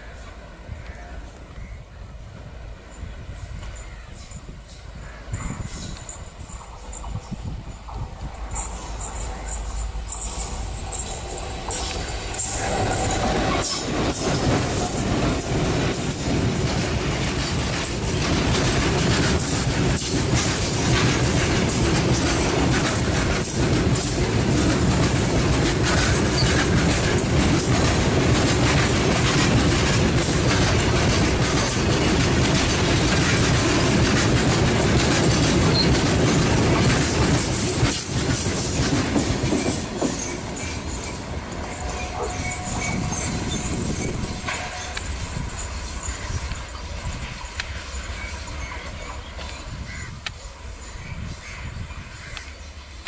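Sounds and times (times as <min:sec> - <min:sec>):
train wheels rumbling on rails: 0:00.0 - 0:53.0
fast clickety-clack: 0:10.4 - 0:41.3.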